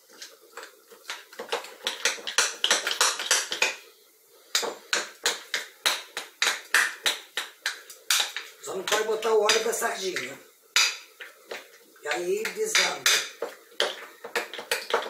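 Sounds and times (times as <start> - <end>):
spoon beating batter in bowl: 0.0 - 3.8, 4.5 - 15.0.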